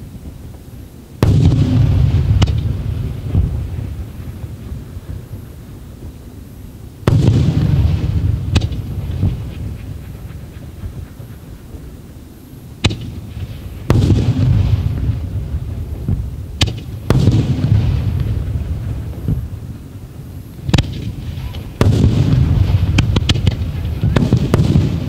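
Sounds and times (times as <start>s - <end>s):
deep rolling firework boom: 1.2s - 25.0s
firework shells cracking: 7.1s - 12.1s, 12.8s - 19.6s, 20.6s - 25.0s.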